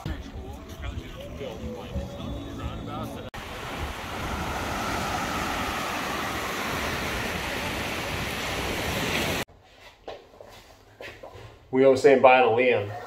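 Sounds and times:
ocean surf on sandy beach: 0:03.4 - 0:09.5.

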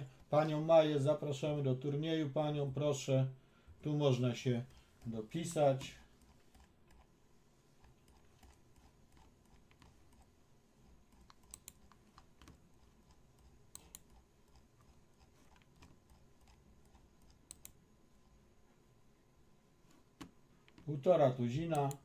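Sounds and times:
computer keyboard clicks: 0:11.1 - 0:14.6, 0:15.5 - 0:17.8.

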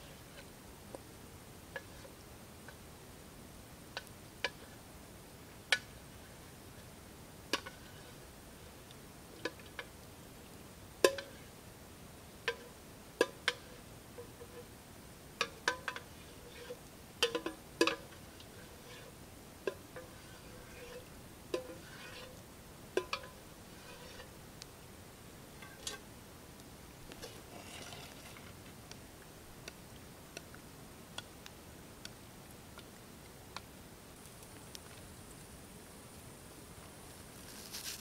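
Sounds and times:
wooden utensil scraping metal pan: 0:15.4 - 0:22.4, 0:23.0 - 0:24.4, 0:25.6 - 0:26.0, 0:27.2 - 0:28.6.

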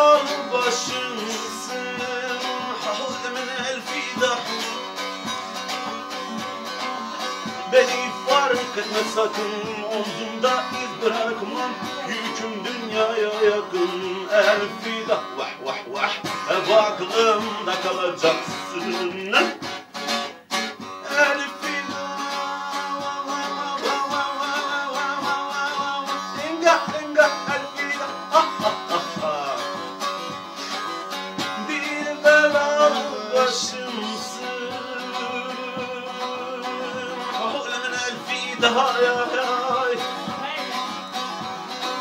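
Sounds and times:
long-necked lute strumming: 0:00.0 - 0:42.0.

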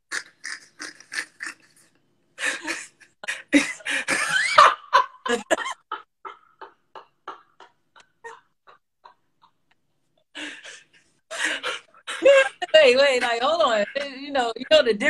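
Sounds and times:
man laughing hard: 0:02.4 - 0:09.2, 0:10.7 - 0:14.5.

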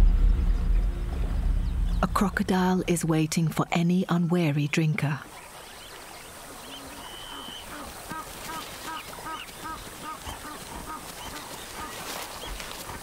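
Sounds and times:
outdoor background noise: 0:00.0 - 0:13.0
waterbird calling: 0:04.2 - 0:13.0.

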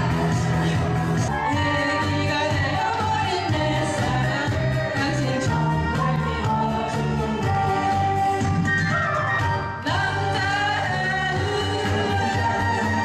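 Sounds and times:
person singing over a beat: 0:09.8 - 0:13.0.

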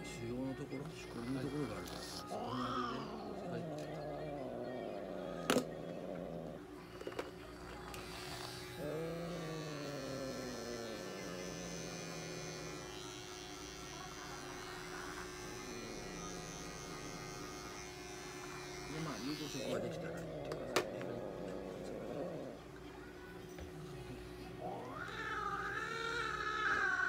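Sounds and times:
electric pet clipper buzzing: 0:07.1 - 0:22.4
cat meowing: 0:24.7 - 0:27.0.

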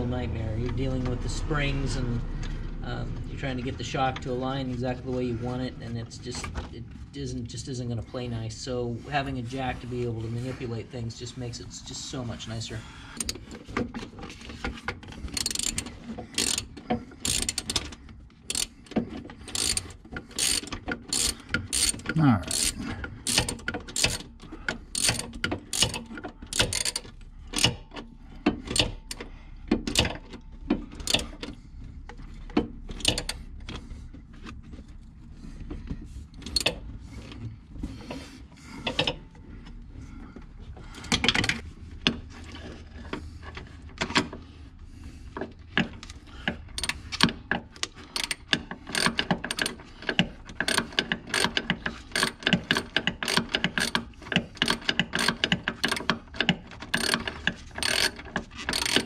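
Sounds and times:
ratchet wrench clicking: 0:15.3 - 0:17.9, 0:18.5 - 0:24.3, 0:24.9 - 0:27.8, 0:31.0 - 0:31.4, 0:33.0 - 0:33.4, 0:46.8 - 0:47.3, 0:48.1 - 0:59.0.

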